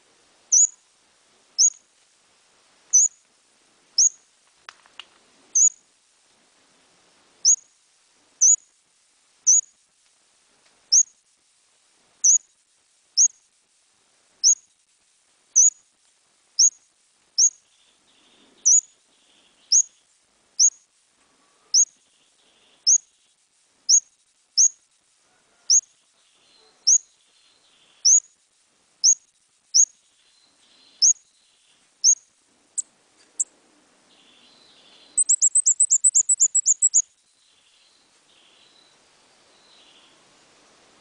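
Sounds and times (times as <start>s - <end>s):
bird whistled calls: 35.2s - 37.0s.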